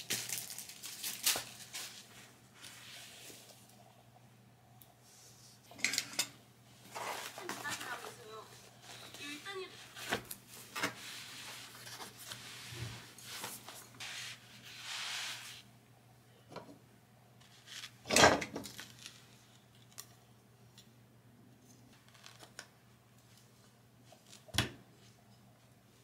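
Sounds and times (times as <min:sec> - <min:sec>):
rustling: 0:00.0 - 0:03.8, 0:06.8 - 0:15.6.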